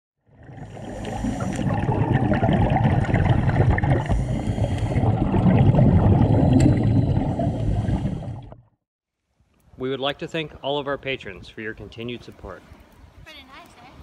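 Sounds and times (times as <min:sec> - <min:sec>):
underwater bubbles rumbling and gurgling: 0:00.2 - 0:08.8.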